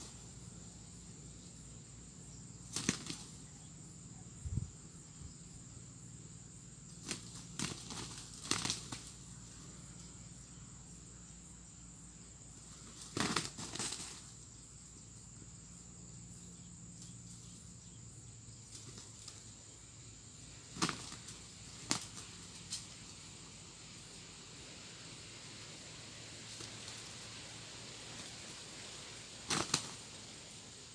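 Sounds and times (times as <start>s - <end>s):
wings flapping: 2.6s - 3.4s, 7.0s - 9.2s, 12.8s - 14.3s, 20.7s - 23.0s, 26.5s - 27.2s, 28.0s - 30.5s.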